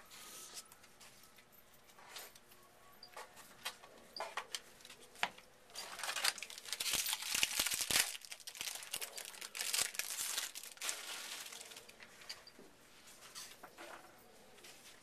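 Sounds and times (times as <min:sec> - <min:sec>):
foil wrapper crinkling and tearing: 0:05.7 - 0:12.0.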